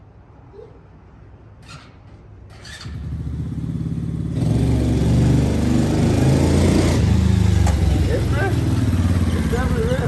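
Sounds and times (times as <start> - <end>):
quad engine under throttle: 2.6 - 10.0.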